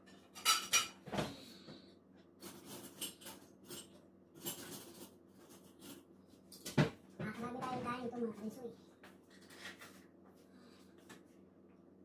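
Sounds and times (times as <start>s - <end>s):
dishes scraping and rustling: 0.0s - 1.7s, 2.3s - 6.8s, 9.1s - 10.3s.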